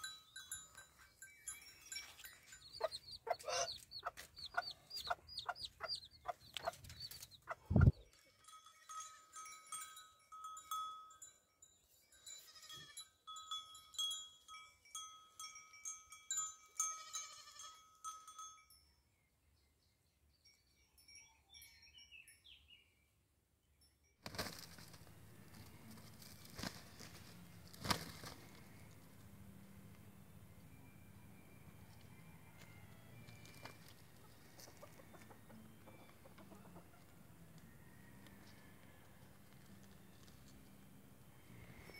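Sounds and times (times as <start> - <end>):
goat bells ringing: 0.0 - 19.1, 20.5 - 22.8
chicks peeping: 2.7 - 8.0.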